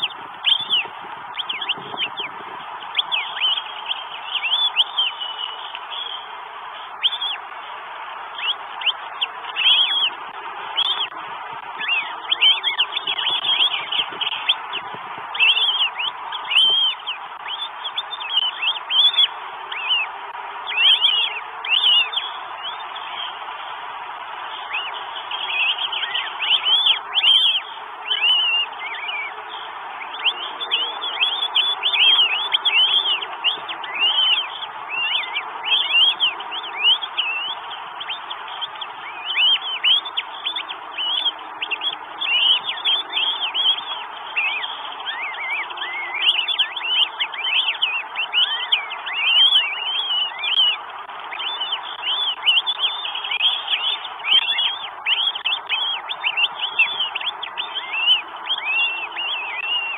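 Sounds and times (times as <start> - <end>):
birds chirping: 0.0 - 59.9
steady hiss: 0.0 - 59.9.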